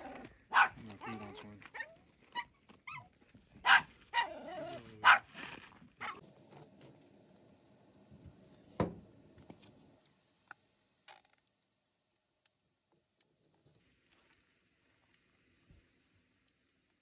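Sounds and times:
dog barking: 0.5 - 3.0, 3.6 - 5.3, 6.0 - 6.2
dog whining: 3.7 - 5.3.

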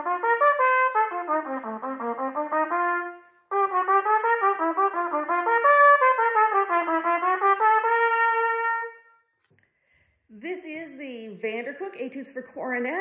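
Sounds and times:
trumpet playing fast runs: 0.0 - 9.1.

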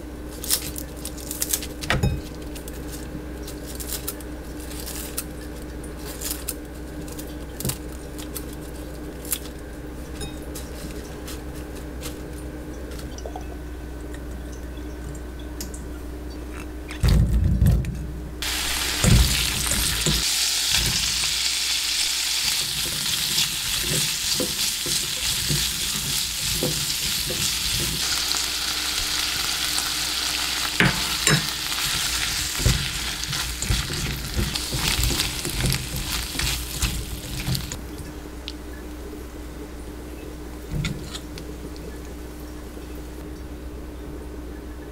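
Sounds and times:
steady low hum: 0.0 - 44.9
food sizzling in a pan: 18.4 - 37.8
utensil stirring in a pan: 18.4 - 37.8.

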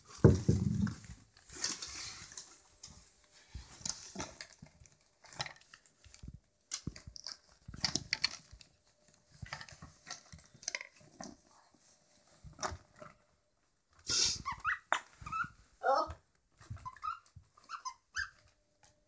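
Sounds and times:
wrapping paper rustling: 0.0 - 13.7.

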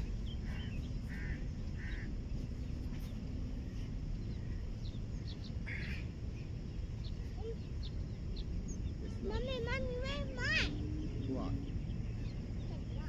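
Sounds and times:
short bird calls: 0.0 - 2.1, 5.2 - 7.9
low rumble: 0.0 - 13.0.

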